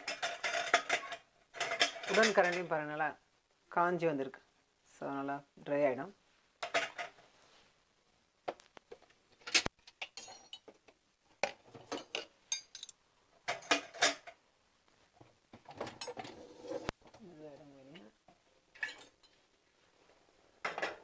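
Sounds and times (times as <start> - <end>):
metal utensils clattering: 0.0 - 2.7, 9.4 - 10.7, 11.7 - 14.3, 15.8 - 16.9, 18.8 - 19.4.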